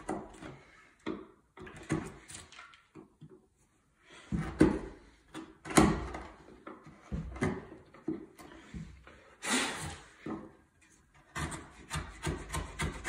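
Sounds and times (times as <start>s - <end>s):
chisel paring wood: 4.4s - 8.6s, 11.1s - 13.0s.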